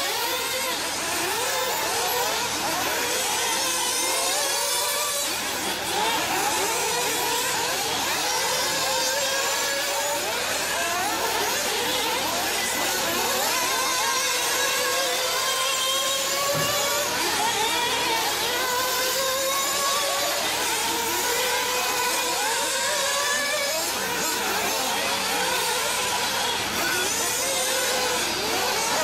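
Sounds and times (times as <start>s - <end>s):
rc car engines buzzing and revving: 0.0s - 29.0s.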